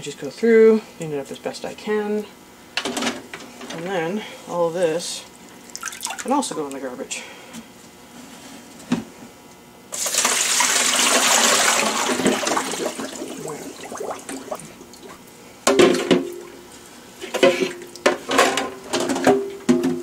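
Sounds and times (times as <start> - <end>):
water pouring into a steel sink: 5.8 - 6.3, 10.0 - 14.8.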